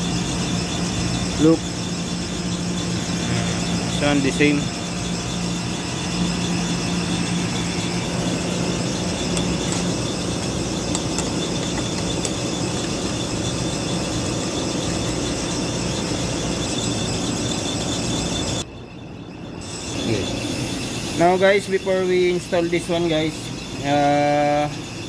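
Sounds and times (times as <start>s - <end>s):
machine high whine: 0.0s - 25.0s
machine low drone: 0.0s - 25.0s.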